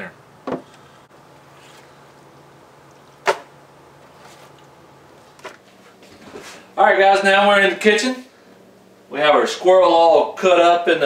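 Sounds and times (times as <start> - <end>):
cutting board knocking on table: 0.4 - 0.6.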